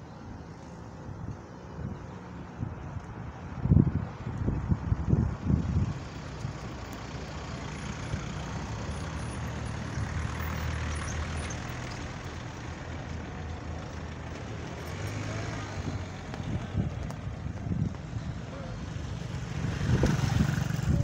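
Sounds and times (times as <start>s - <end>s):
street noise: 0.0s - 21.0s
vehicle engine running: 5.1s - 21.0s.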